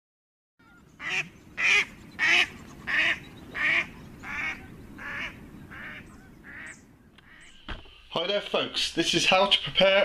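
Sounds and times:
duck quacking: 1.0 - 7.5.

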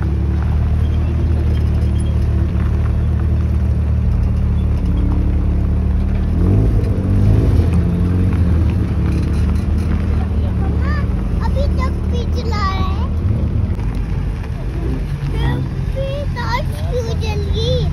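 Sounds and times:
car engines rumbling: 0.0 - 17.9
engine revving: 0.0 - 17.9.

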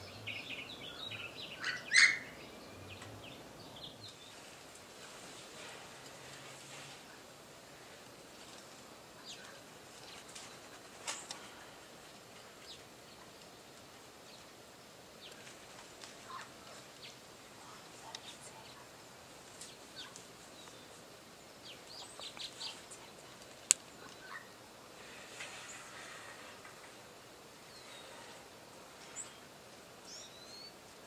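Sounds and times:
parrots chirping: 0.5 - 2.5.

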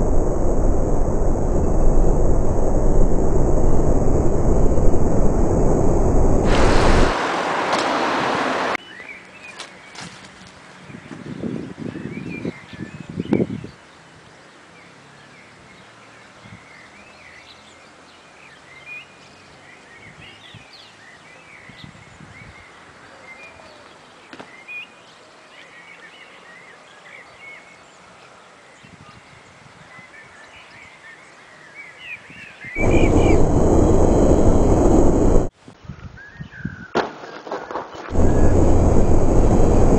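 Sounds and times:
loud rushing noise: 0.0 - 8.8, 32.8 - 35.5, 38.1 - 39.9
birds chirping: 32.8 - 35.5.

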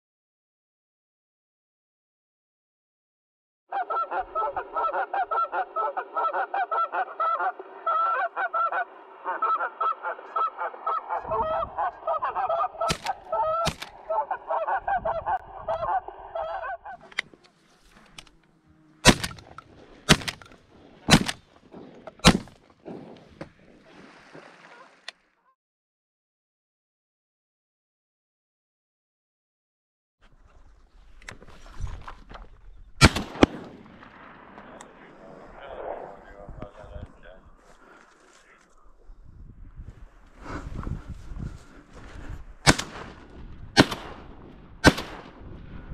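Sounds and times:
geese honking: 3.7 - 20.2
shotgun shots: 12.8 - 14.0, 19.0 - 20.4, 21.1 - 21.5, 22.2 - 22.6, 33.0 - 35.1, 42.6 - 45.6.

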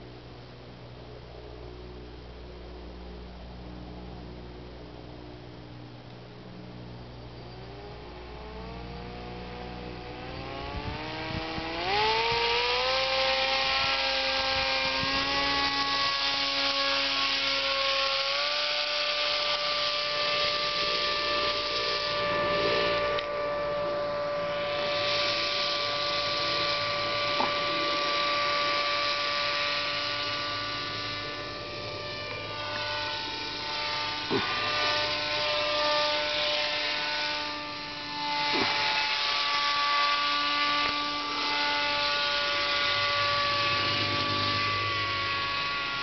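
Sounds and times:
propeller motor whining: 0.0 - 46.0
loud hiss of air: 24.4 - 31.4.

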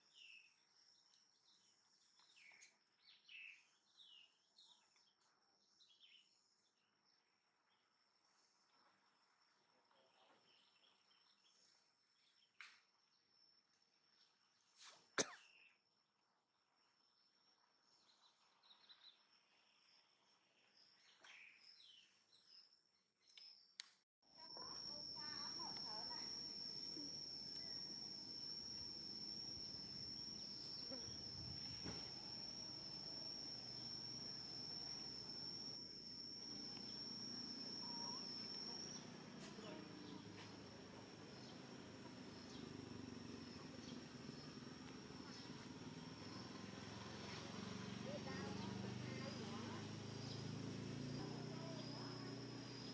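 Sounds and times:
high-pitched insect drone: 24.3 - 52.9.

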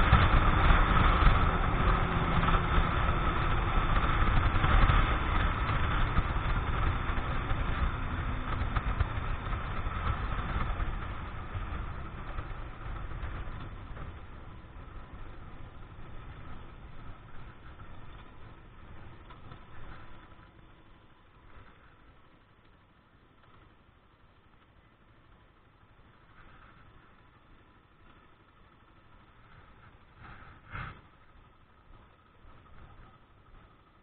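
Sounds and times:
wind rush: 0.0 - 17.9
motorcycle engine: 0.0 - 34.0.

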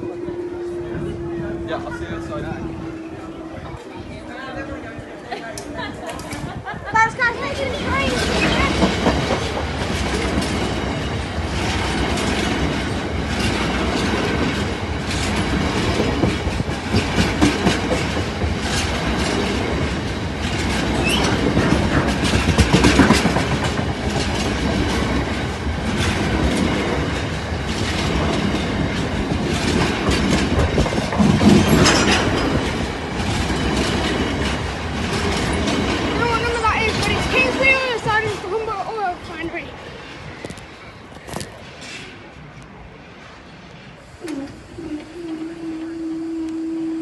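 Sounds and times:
train wheels clattering over rail joints: 6.1 - 39.6.

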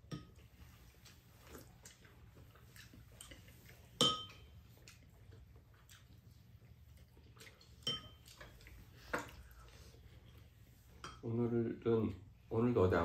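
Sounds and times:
chopsticks clinking on ceramic bowls: 4.0 - 4.5, 7.6 - 8.7.

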